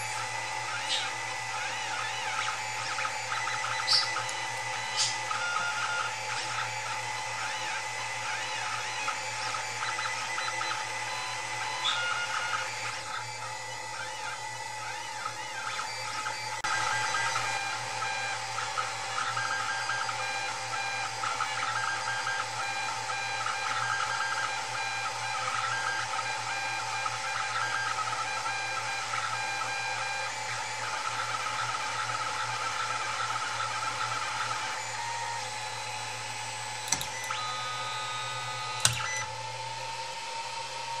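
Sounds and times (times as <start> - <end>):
printer fans whirring: 0.0 - 41.0
stepper motors whining: 0.0 - 41.0
sharp clicks: 36.8 - 37.4.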